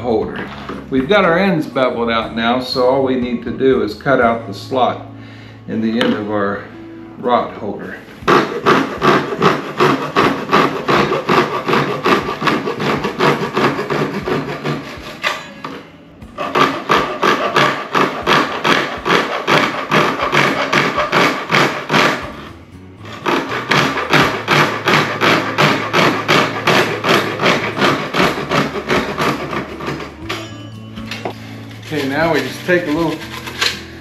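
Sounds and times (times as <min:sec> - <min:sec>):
hand saw cutting plastic pipe: 0:08.2 - 0:30.5, 0:31.1 - 0:34.0.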